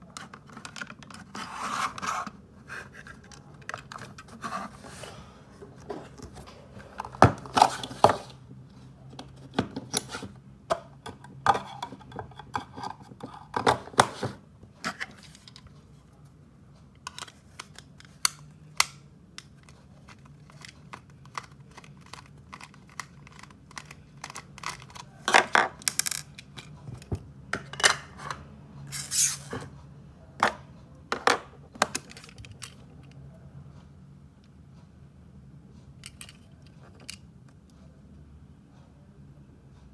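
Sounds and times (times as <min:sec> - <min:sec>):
handling clicks taps and scrapes: 0:00.1 - 0:04.9, 0:09.1 - 0:16.1, 0:16.8 - 0:28.4, 0:30.4 - 0:33.2, 0:36.0 - 0:37.8.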